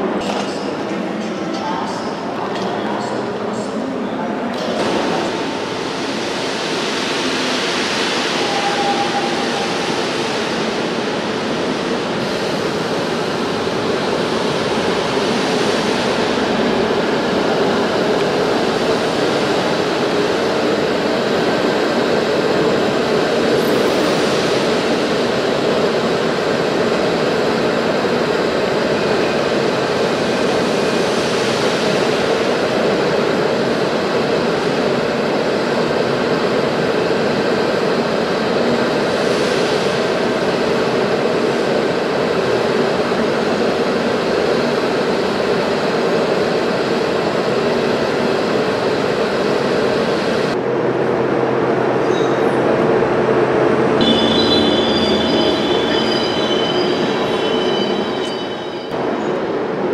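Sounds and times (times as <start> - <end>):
steam locomotive hissing steam: 4.6 - 33.1.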